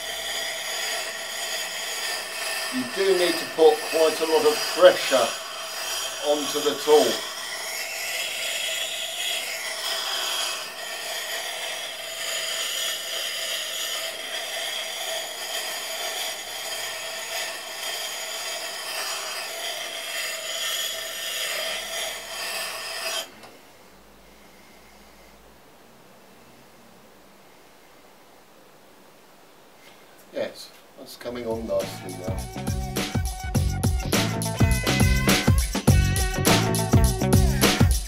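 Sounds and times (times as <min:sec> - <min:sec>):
steel grinding on wet stone: 0:00.0 - 0:23.4, 0:31.6 - 0:38.0.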